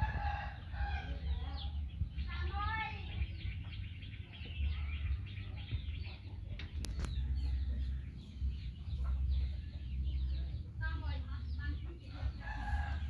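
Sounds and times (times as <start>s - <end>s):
small birds chirping: 0.0s - 13.0s
steady low rumble: 0.0s - 13.0s
sharp clicks: 6.6s - 7.2s.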